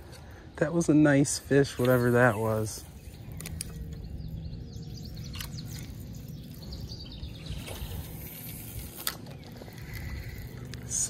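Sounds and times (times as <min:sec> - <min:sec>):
birds chirping: 0:00.0 - 0:11.0
low rumble: 0:02.7 - 0:11.0
sharp clicks: 0:03.3 - 0:04.0.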